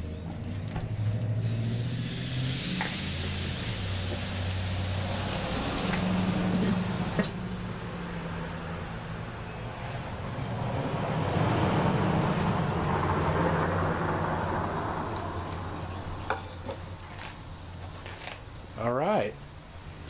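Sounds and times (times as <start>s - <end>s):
fish sizzling on a grill: 1.4s - 7.2s.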